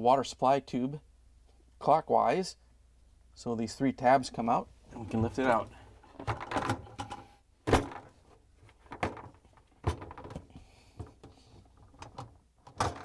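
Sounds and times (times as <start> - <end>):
plastic clicks and knocks: 6.2 - 8.1, 8.7 - 13.0.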